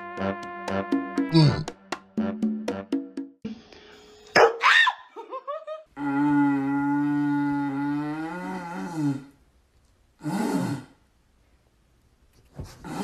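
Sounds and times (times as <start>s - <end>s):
tube blown like a horn: 0.0s - 1.6s.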